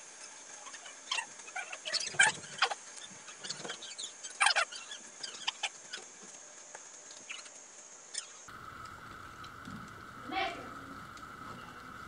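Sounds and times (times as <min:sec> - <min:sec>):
steady high whine: 0:07.8 - 0:12.0
low hum: 0:08.5 - 0:12.0.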